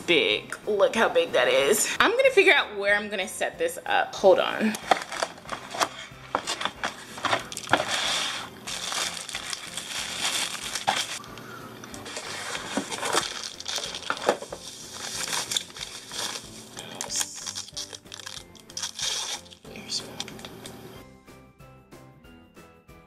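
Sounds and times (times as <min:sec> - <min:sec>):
plastic packaging crinkling: 0:04.8 - 0:11.3, 0:11.9 - 0:20.5
cardboard box being handled: 0:12.0 - 0:15.6.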